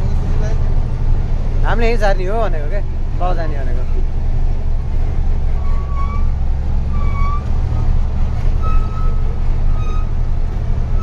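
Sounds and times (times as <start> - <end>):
truck diesel engine running: 0.0 - 11.0.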